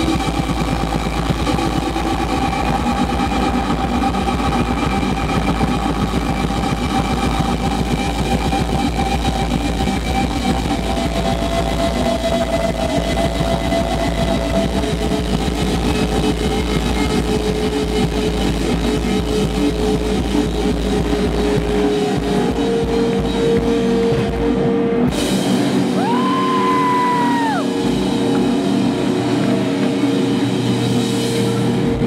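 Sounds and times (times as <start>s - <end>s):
heavy rock band playing: 0.0s - 32.0s.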